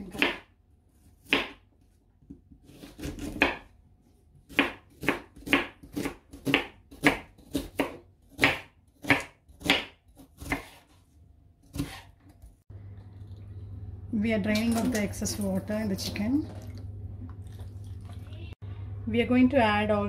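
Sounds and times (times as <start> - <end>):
knife chopping on wooden board: 0.1 - 0.5, 1.2 - 1.7, 2.3 - 3.7, 4.5 - 11.0, 11.6 - 12.2.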